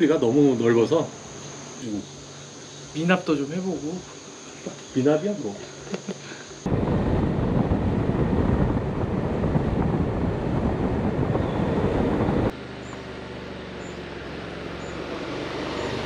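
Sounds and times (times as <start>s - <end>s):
road noise: 0.0s - 16.0s
wind rush on microphone: 6.7s - 12.6s
scooter engine hum: 6.7s - 16.0s.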